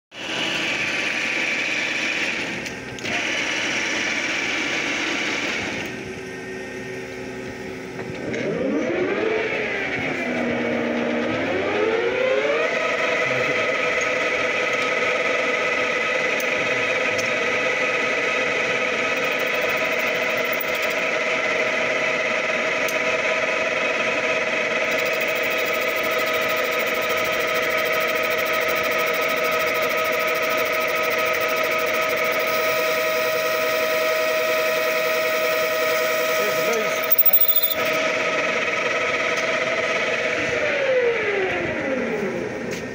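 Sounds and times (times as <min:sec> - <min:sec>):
lathe gears whining: 0:18.8 - 0:21.2, 0:24.7 - 0:38.1.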